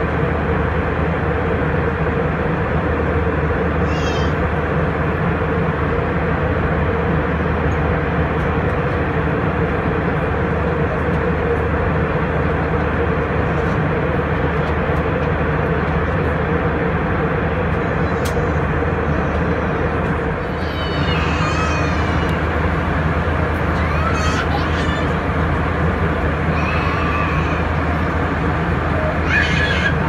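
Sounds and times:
constant cabin hum: 0.0 - 30.0
jet engine and airflow rush: 0.0 - 30.0.

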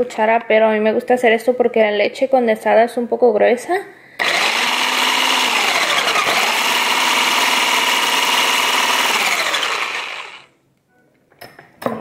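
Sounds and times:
electric mixer motor whine: 4.2 - 10.5.

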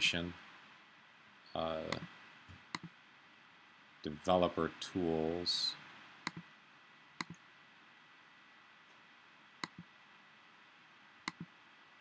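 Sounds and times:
faint steady hiss: 0.0 - 12.0
computer mouse clicks: 1.9 - 2.1, 2.7 - 2.9, 6.2 - 6.5, 7.2 - 7.4, 9.6 - 9.9, 11.2 - 11.5.

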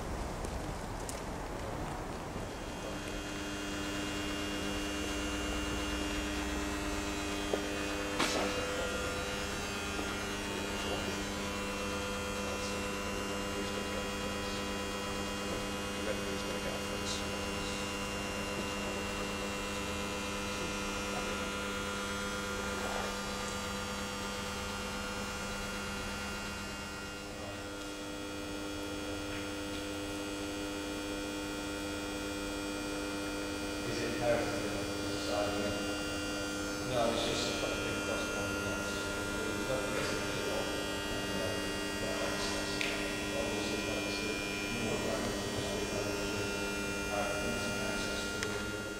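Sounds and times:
electrical mains hum: 0.0 - 48.9.

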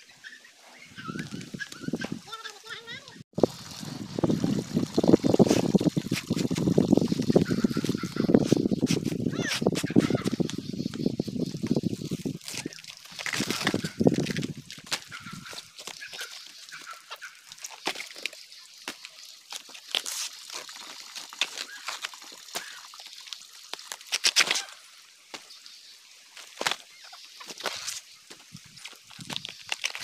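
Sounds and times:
plant stem cracking and snapping: 23.7 - 24.7, 29.2 - 30.0.

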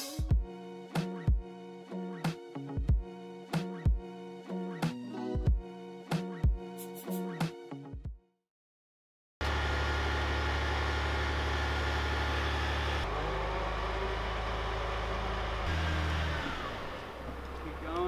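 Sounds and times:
truck engine humming: 9.4 - 18.0.

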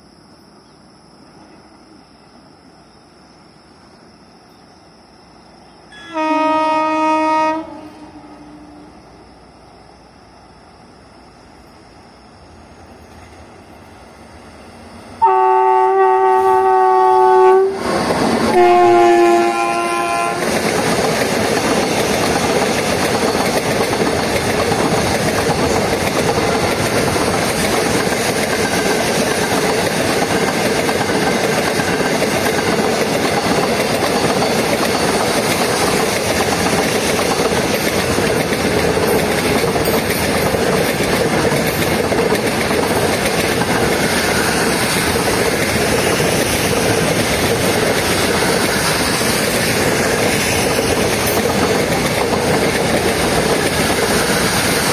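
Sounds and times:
locomotive horn honking: 6.0 - 9.0, 15.2 - 17.8, 18.5 - 20.4
train wheels running over rails: 12.6 - 54.9.

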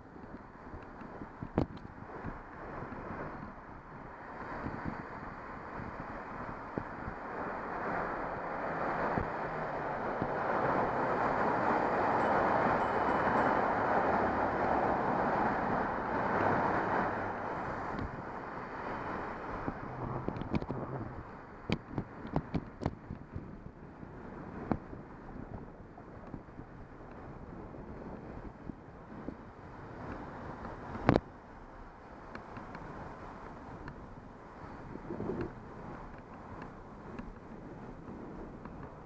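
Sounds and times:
wind on microphone: 0.0 - 39.0
car traffic rushing: 7.2 - 21.4.

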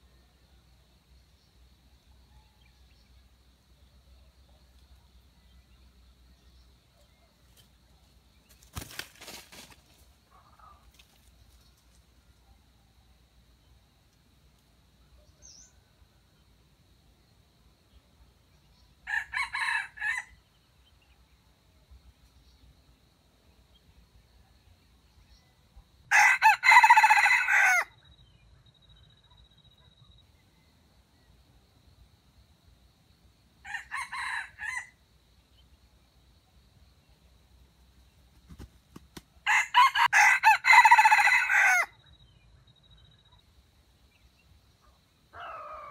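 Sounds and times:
wing flapping: 8.5 - 10.1, 38.3 - 39.3
rooster crowing: 19.0 - 20.4, 26.1 - 27.9, 33.6 - 35.0, 39.4 - 41.9, 45.3 - 45.9.

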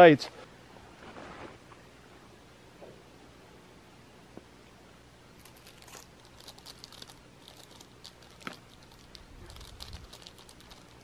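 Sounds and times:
faint crinkling and crackling: 5.4 - 11.0.

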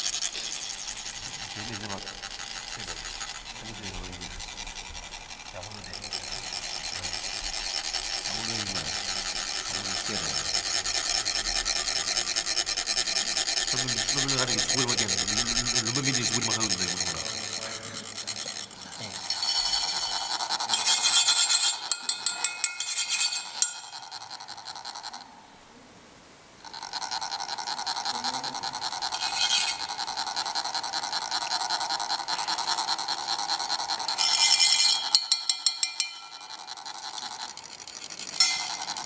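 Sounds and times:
rod rasping along metal funnel: 0.0 - 25.3, 26.7 - 39.0.

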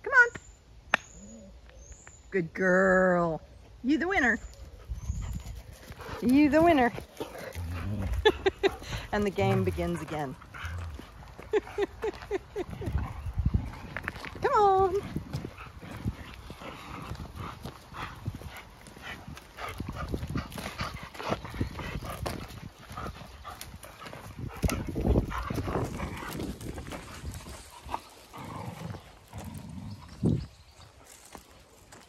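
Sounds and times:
paws crunching on gravel: 4.5 - 32.0
dogs growling: 6.9 - 14.2, 15.0 - 30.4.

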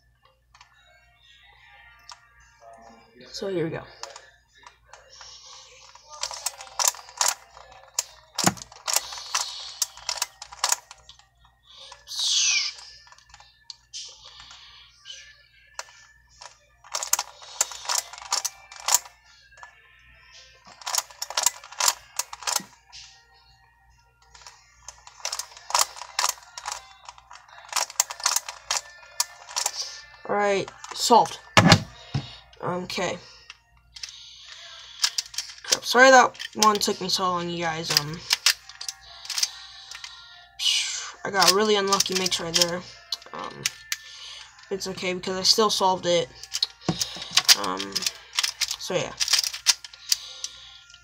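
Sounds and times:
puzzle pieces clicking: 5.2 - 11.2, 15.8 - 19.1, 20.7 - 23.1, 24.3 - 31.0, 33.9 - 37.2, 37.8 - 40.2, 41.4 - 44.6, 46.4 - 51.0.

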